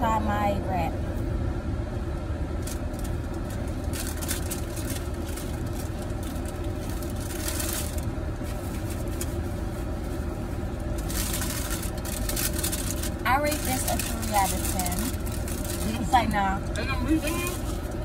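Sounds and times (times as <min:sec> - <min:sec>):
car engine idling inside cabin: 0:00.0 - 0:18.0
paper wrapper crinkling: 0:02.6 - 0:10.2, 0:10.8 - 0:16.4.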